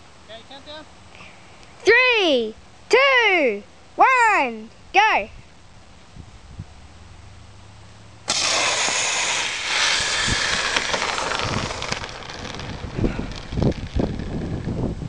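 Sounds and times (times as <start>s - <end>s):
wind on microphone: 6.1s - 6.8s, 8.4s - 15.0s
thumps: 8.3s - 14.8s
water rocket hiss: 8.3s - 14.8s.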